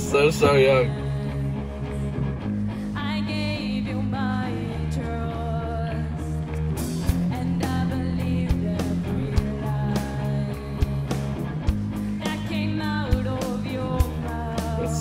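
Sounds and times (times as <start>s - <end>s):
bass guitar: 0.0s - 15.0s
electric guitar: 0.0s - 15.0s
young woman singing: 0.9s - 1.6s, 3.0s - 6.4s, 7.2s - 11.1s, 12.2s - 15.0s.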